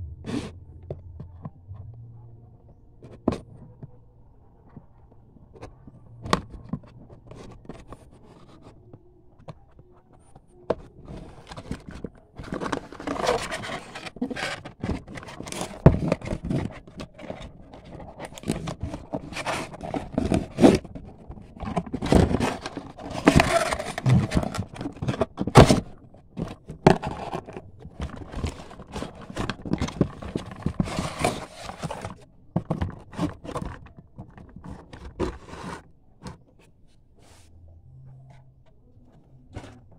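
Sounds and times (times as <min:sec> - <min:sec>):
cardboard box scraping and rubbing: 0:11.0 - 0:35.9.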